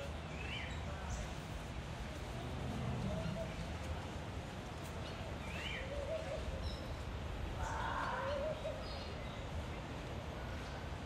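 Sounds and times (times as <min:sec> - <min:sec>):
low background noise: 0:00.0 - 0:11.0.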